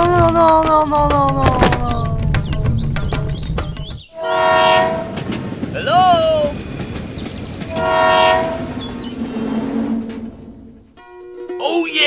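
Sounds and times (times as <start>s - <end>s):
train rumbling: 0.0s - 11.1s
train horn blasts: 4.2s - 5.2s, 7.7s - 8.7s.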